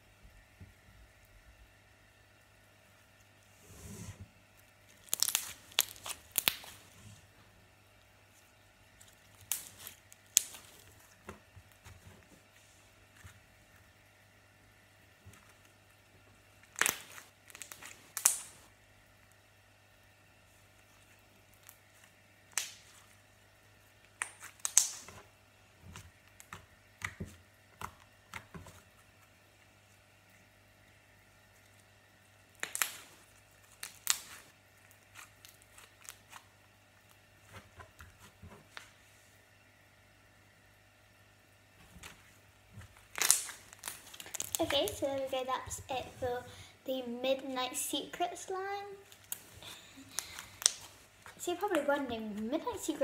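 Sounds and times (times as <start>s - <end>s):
slime clicking and popping: 4.9s - 6.8s, 9.3s - 10.8s, 16.7s - 18.5s, 22.5s - 23.0s, 24.2s - 25.2s, 32.5s - 34.4s, 43.1s - 45.0s.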